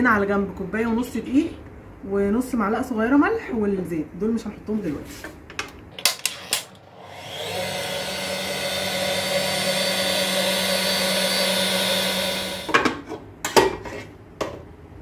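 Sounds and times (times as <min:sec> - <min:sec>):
stand mixer running: 0:06.2 - 0:12.8.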